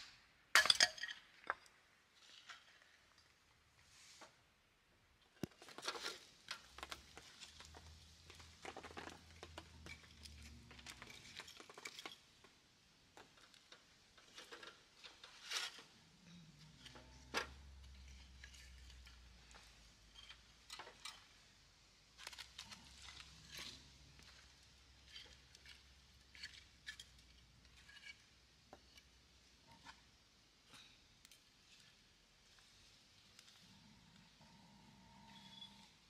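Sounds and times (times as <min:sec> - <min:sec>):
wooden sticks knocking and clattering: 0:00.0 - 0:03.0, 0:05.4 - 0:21.6.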